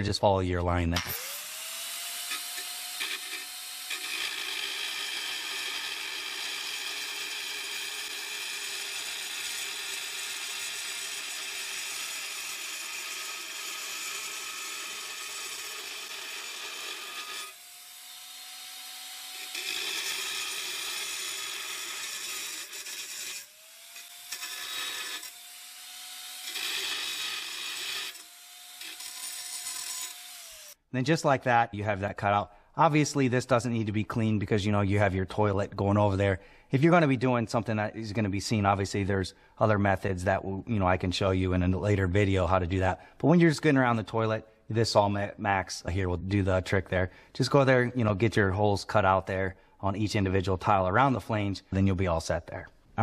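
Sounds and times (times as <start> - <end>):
blade grinding tile: 1.0 - 30.8
saw motor whine: 1.0 - 30.8.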